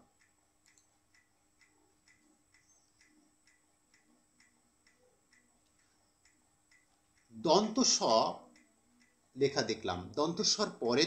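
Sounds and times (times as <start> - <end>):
clock ticking: 0.0 - 11.0.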